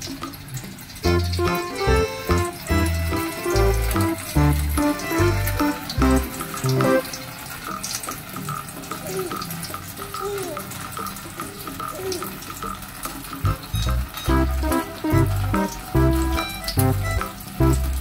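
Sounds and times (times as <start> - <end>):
water splashing into metal tray: 0.0 - 18.0.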